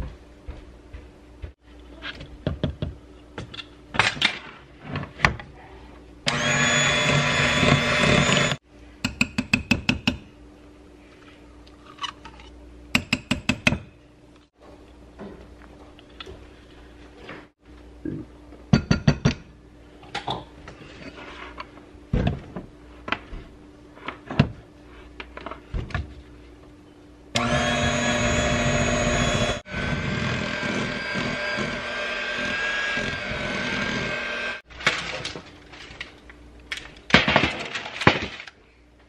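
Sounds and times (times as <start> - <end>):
electric hand mixer beating: 6.3 - 8.6, 27.4 - 34.6.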